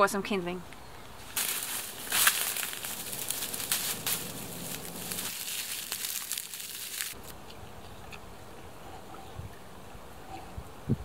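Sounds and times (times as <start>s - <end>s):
dry grass rustling and crackling: 1.2s - 7.3s.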